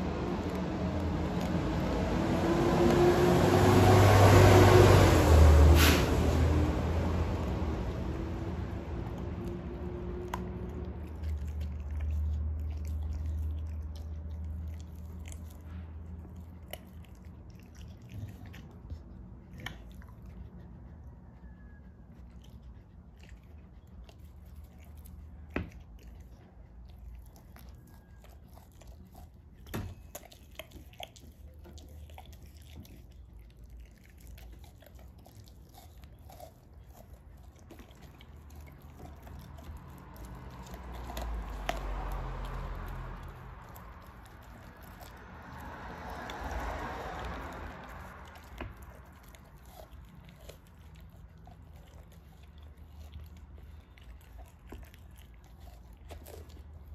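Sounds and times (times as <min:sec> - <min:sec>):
dog licking and chewing meat: 0:00.0 - 0:56.9.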